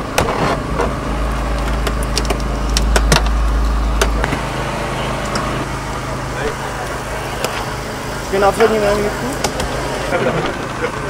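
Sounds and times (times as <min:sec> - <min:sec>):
hydraulic power unit engine running: 0:00.0 - 0:11.0
sharp cracks and clicks: 0:00.1 - 0:04.4.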